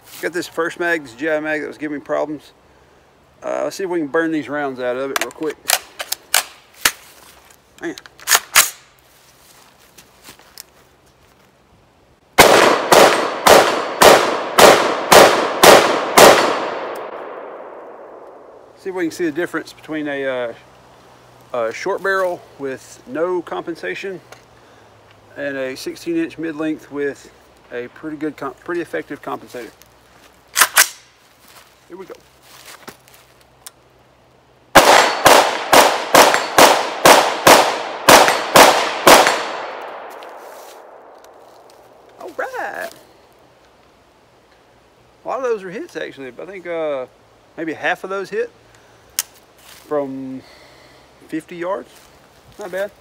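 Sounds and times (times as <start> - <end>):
rifle shots echoing: 12.4 - 18.6, 34.7 - 40.2.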